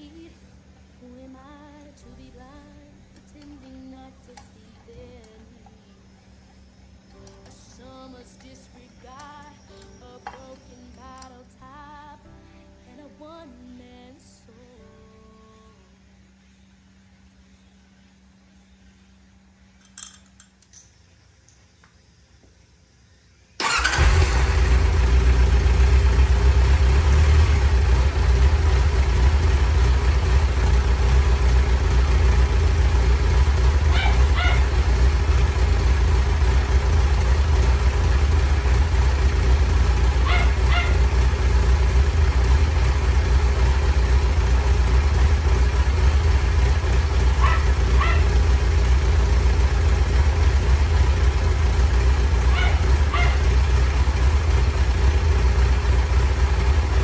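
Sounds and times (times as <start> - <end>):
motorcycle engine idling: 23.6 - 57.0.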